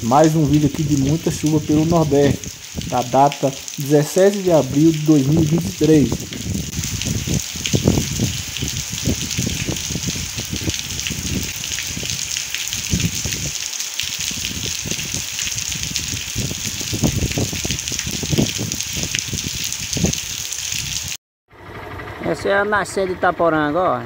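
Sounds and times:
low rumbles: 0.0s - 13.5s
rain on wet pavement: 0.0s - 21.2s.

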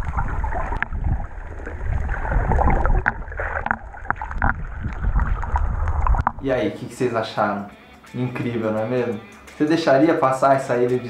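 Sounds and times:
clicks and bubbling: 0.0s - 6.5s
water sloshing against microphone: 0.0s - 6.8s.

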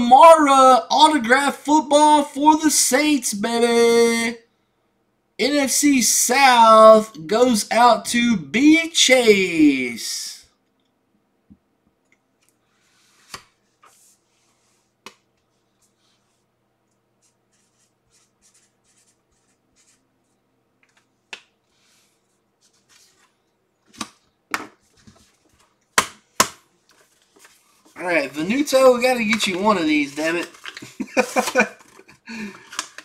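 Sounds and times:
paper rustling: 21.7s - 24.2s, 24.8s - 25.8s, 26.8s - 33.0s.

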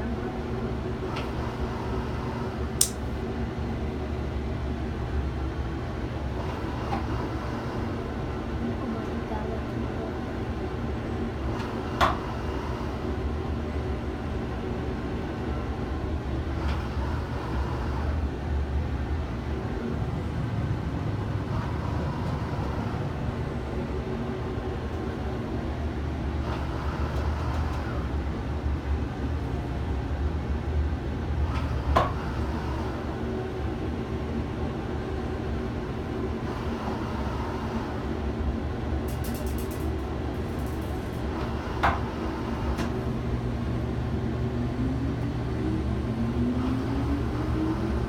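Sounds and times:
gondola low rumble: 0.0s - 48.0s
sharp clicks: 2.8s - 3.0s.

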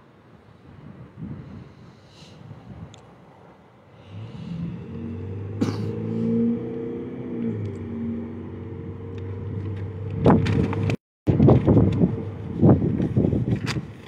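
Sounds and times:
vehicle engine humming: 3.3s - 14.0s.

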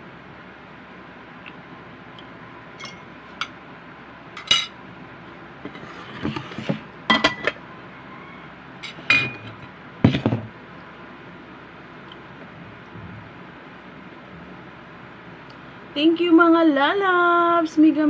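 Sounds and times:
plates and utensils clinking: 2.8s - 3.5s, 4.4s - 4.8s, 5.7s - 7.6s, 8.8s - 10.4s.

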